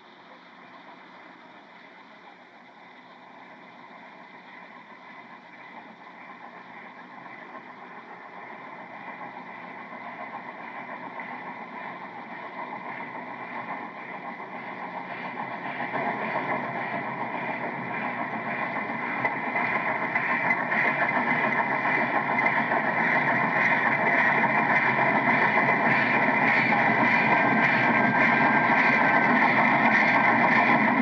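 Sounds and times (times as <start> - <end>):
steam train rumbling: 0.0 - 31.0.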